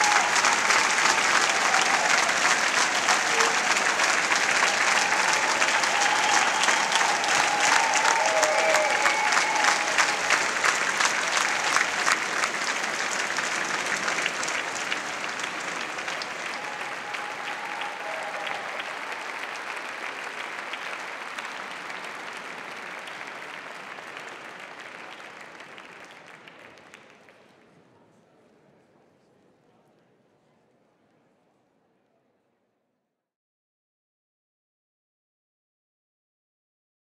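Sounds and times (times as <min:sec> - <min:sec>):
audience applauding: 0:00.0 - 0:27.6.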